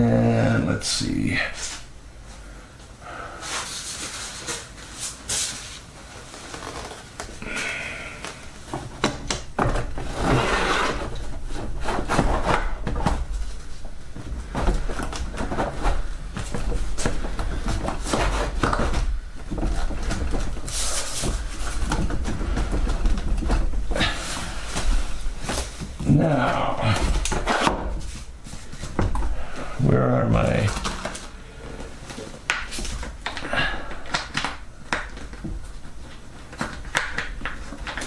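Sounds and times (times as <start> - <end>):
rubbing and rustling: 3.3 - 7.4, 8.3 - 29.7.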